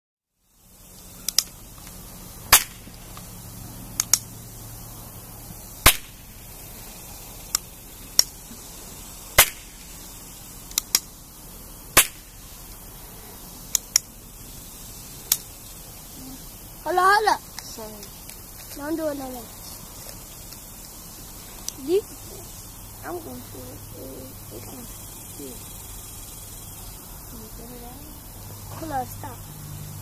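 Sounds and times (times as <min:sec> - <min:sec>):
steady low hiss: 0:00.3 - 0:30.0
sharp clicks: 0:01.2 - 0:03.3, 0:03.9 - 0:04.4, 0:07.4 - 0:08.4, 0:10.7 - 0:11.1, 0:13.7 - 0:14.1, 0:15.2 - 0:15.5.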